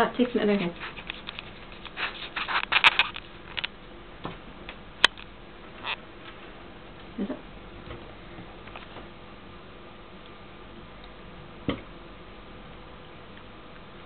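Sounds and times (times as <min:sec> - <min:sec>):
guinea pig eating clicks and rustles: 0:00.1 - 0:03.8.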